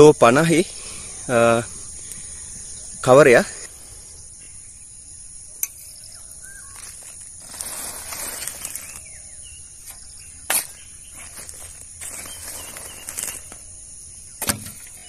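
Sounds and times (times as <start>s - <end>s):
birds chirping: 0.0s - 15.0s
soil pouring into plastic sack: 6.8s - 9.1s, 11.1s - 13.7s.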